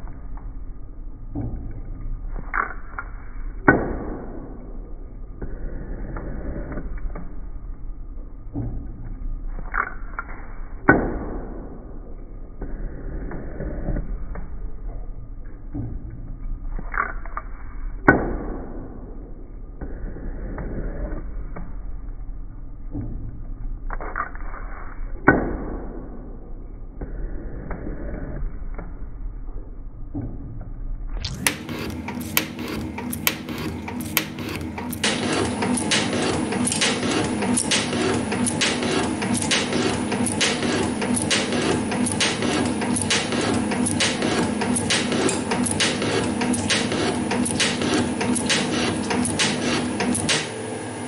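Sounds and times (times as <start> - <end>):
machine drive hum: 0.0 - 51.0
metal shaper cutting strokes: 31.2 - 50.6.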